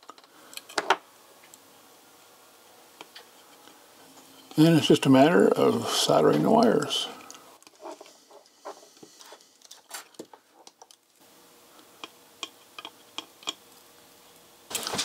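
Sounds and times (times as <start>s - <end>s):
small parts clicking and tapping: 0.0s - 1.6s, 6.8s - 11.2s, 11.8s - 13.9s.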